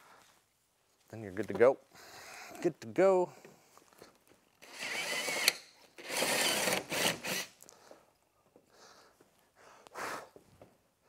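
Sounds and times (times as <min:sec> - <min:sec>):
cordless drill drilling: 0:04.6 - 0:07.5.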